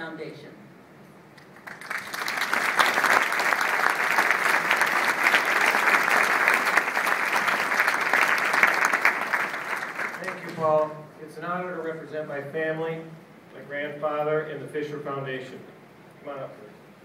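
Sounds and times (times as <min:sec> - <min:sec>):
audience applauding: 0:01.4 - 0:11.0.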